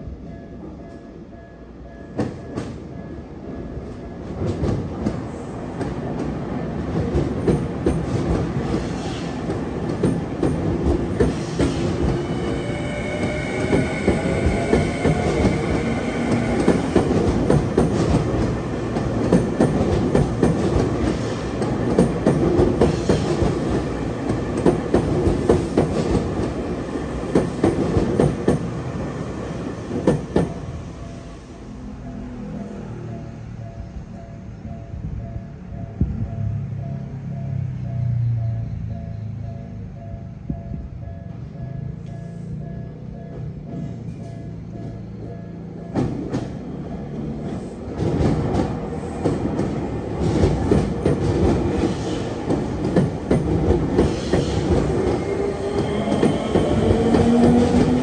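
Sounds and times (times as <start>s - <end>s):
train wheels clacking over rails: 4.4s - 28.9s, 29.6s - 30.9s, 45.8s - 58.0s.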